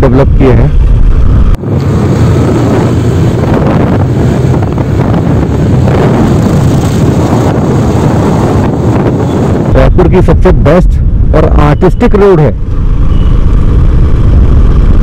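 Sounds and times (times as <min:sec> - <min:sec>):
road noise: 0:00.0 - 0:15.0
wind noise on microphone: 0:00.0 - 0:15.0
motorcycle engine: 0:00.7 - 0:09.8, 0:12.6 - 0:15.0.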